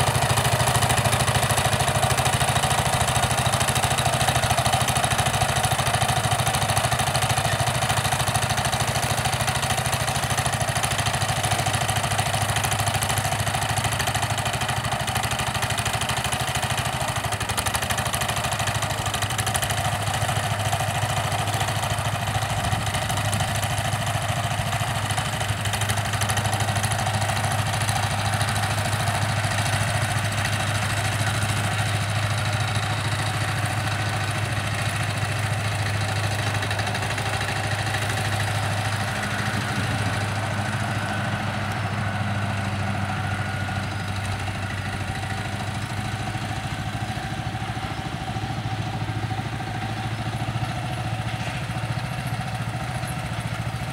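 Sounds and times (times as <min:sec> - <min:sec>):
small tractor engine running: 0:00.0 - 0:53.9.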